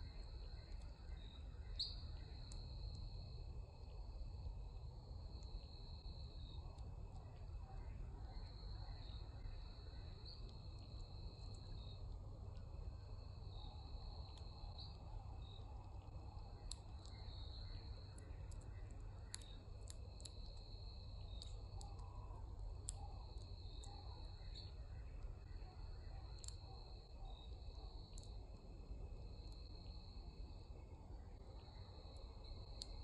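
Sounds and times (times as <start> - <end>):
low outdoor rumble: 0.0 - 33.0
sharp clicks: 21.3 - 22.1.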